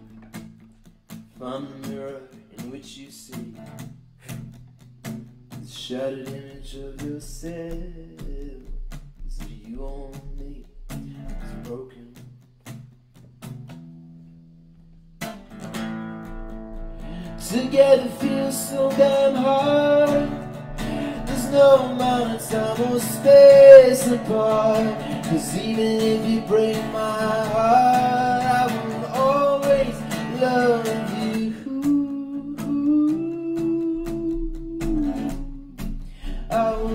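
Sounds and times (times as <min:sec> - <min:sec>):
acoustic guitar: 0:00.0 - 0:36.9
man singing: 0:01.4 - 0:03.7, 0:05.6 - 0:12.3, 0:17.1 - 0:36.9.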